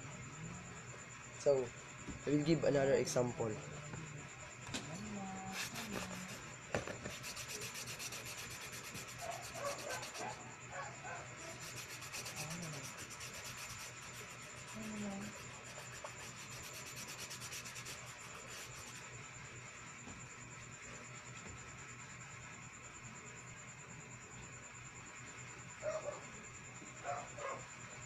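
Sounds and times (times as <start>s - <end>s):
paper being scratched: 5.5s - 10.4s, 11.4s - 19.1s.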